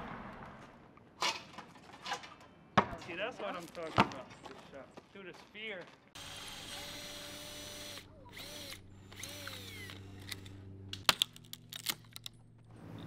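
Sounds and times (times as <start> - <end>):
power drill driving screws into wood: 6.2 - 10.5.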